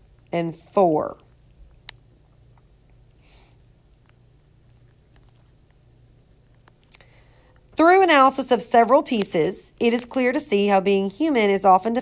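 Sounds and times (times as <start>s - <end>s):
steady low hum: 0.0s - 12.0s
short soft breath: 3.2s - 3.6s, 7.0s - 7.6s.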